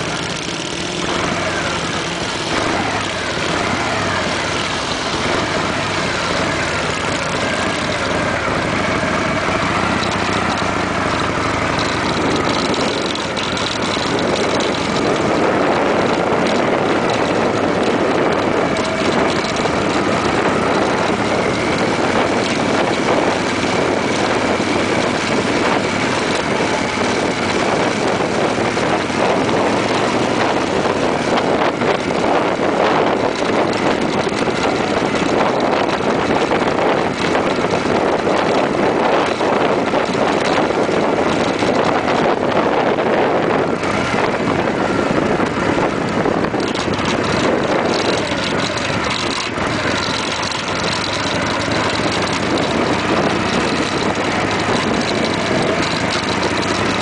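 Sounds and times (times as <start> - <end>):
vehicle engine and wind rush: 0.0 - 57.0.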